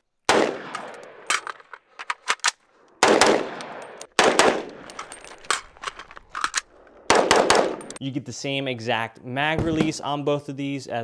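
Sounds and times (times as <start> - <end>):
rifle shots ringing: 0.3 - 1.4, 3.0 - 5.8, 6.6 - 8.0.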